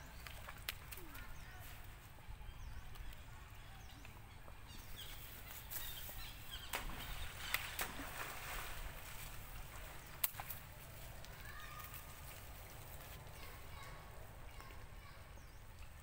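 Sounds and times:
sharp water slaps: 0:00.2 - 0:01.2, 0:06.6 - 0:11.4
splashing in shallow water: 0:04.9 - 0:13.3.

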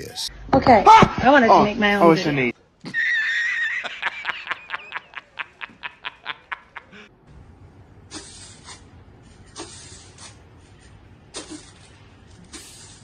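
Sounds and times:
man's staccato belly laugh: 0:02.9 - 0:07.0.

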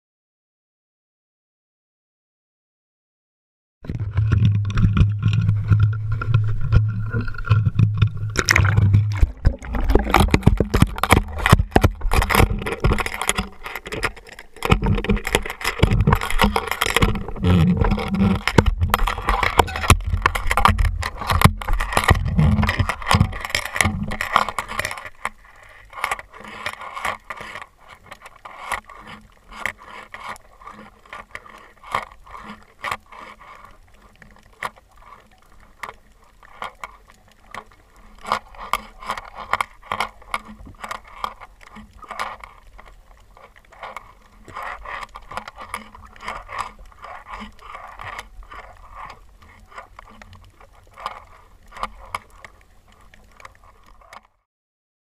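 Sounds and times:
underwater clicks knocks and scrapes: 0:03.8 - 0:54.4
low steady hum: 0:03.9 - 0:24.8
water moving past: 0:03.9 - 0:54.2.

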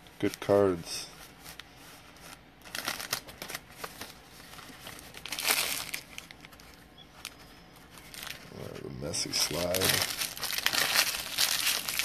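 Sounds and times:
foil wrappers crinkling: 0:00.0 - 0:12.0
wrapper tearing open: 0:02.6 - 0:12.0.

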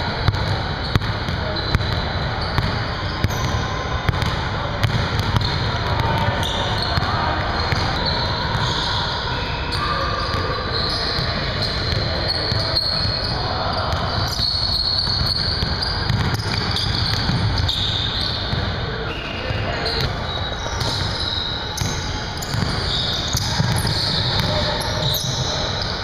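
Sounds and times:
basketball bouncing on hardwood floor: 0:15.1 - 0:17.7, 0:21.8 - 0:25.5.

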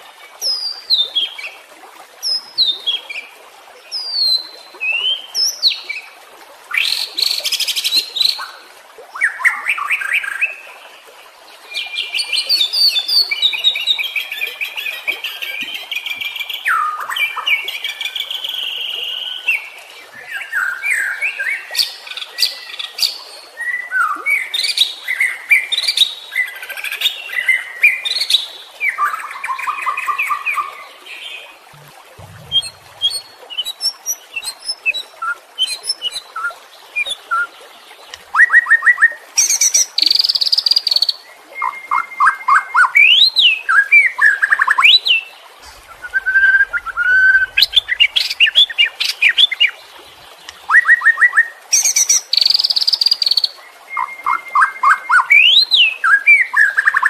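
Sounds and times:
bird singing whistled phrases: 0:45.6 - 0:49.6.

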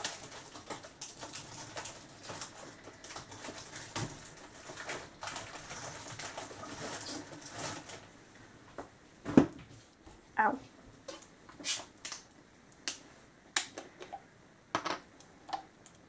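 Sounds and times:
household items clicking and knocking: 0:00.0 - 0:08.0.

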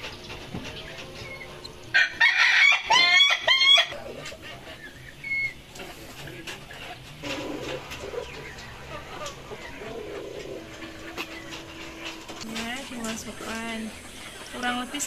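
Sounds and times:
rooster crowing: 0:01.9 - 0:04.0.

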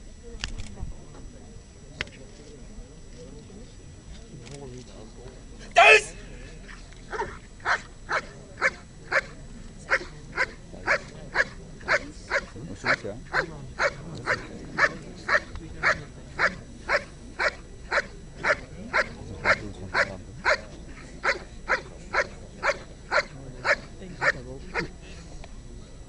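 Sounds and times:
large dog barking: 0:07.1 - 0:09.3, 0:09.9 - 0:24.9.

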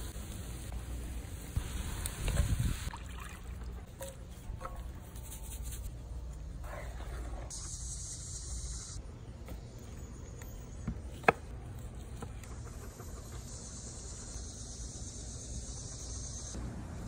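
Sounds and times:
insects buzzing: 0:12.8 - 0:16.6.

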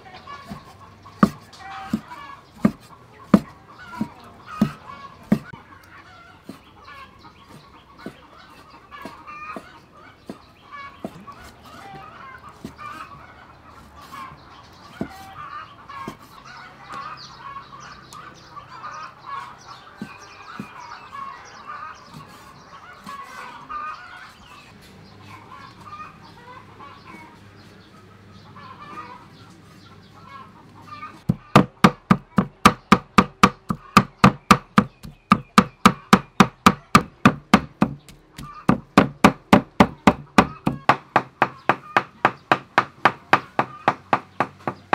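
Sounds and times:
chickens clucking: 0:00.0 - 0:44.9
cleaver chopping on wooden block: 0:00.4 - 0:05.6, 0:31.3 - 0:44.9.

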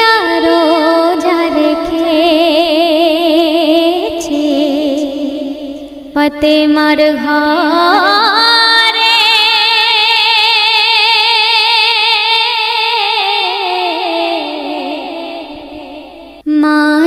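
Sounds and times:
person singing with vibrato: 0:00.0 - 0:17.0.

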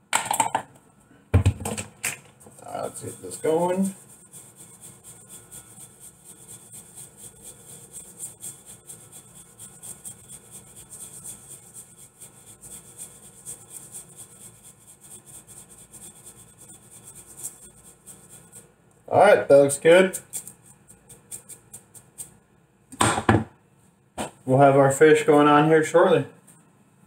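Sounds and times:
spices rustling in a bowl: 0:02.2 - 0:22.6.

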